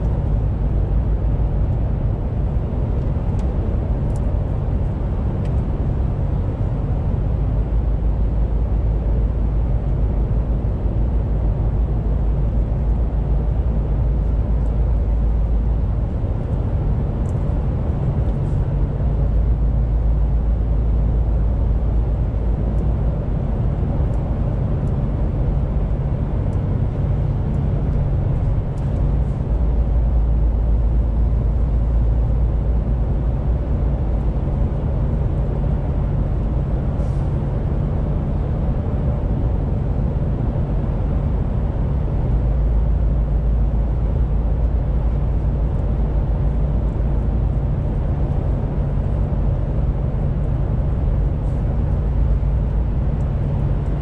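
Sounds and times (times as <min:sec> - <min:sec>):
diesel truck engine drone: 0:00.0 - 0:54.0.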